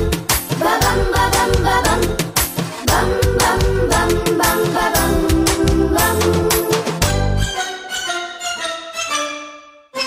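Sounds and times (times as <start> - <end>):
instrumental children's music: 0.0 - 10.0.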